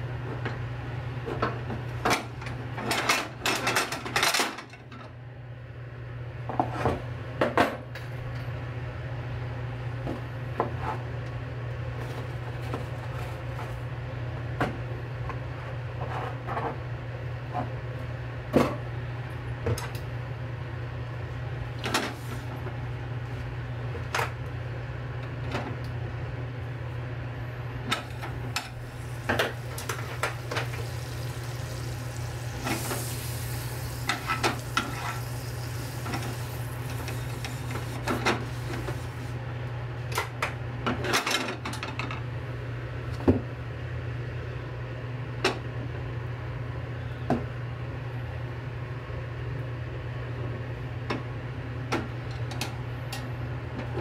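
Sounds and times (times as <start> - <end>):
steady low hum: 11.8 - 40.1
hiss: 28.8 - 39.3.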